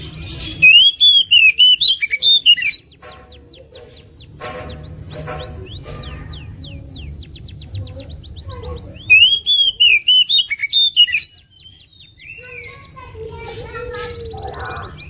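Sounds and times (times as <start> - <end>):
bird warbling: 0.0 - 15.0
bird singing falling whistles: 0.4 - 2.9, 9.1 - 11.4.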